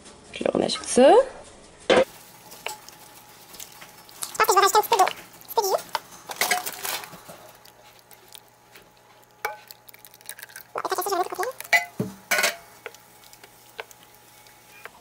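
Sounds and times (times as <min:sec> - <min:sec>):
spoon stirring thick sauce: 0:02.2 - 0:15.0.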